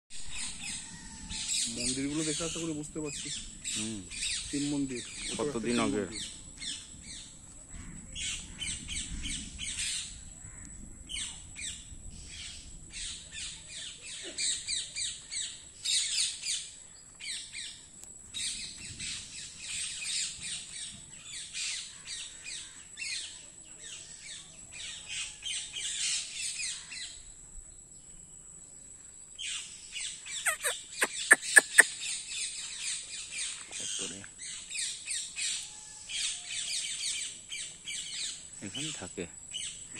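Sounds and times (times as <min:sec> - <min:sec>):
parrots squawking and chattering: 0:30.4 - 0:32.0.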